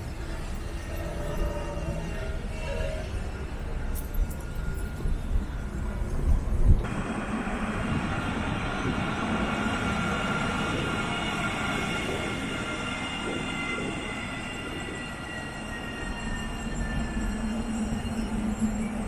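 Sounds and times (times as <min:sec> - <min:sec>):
tram rumbling: 0:00.0 - 0:19.0.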